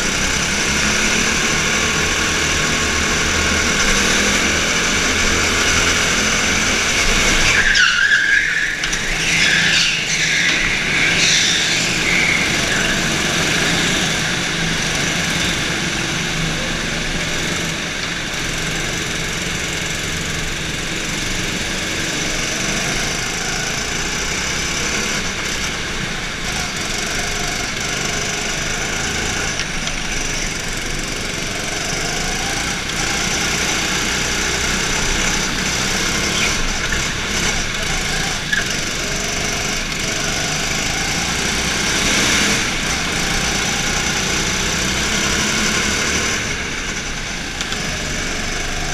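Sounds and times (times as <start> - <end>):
go-kart engine running: 0.0 - 48.9
tyres squealing: 6.9 - 14.2.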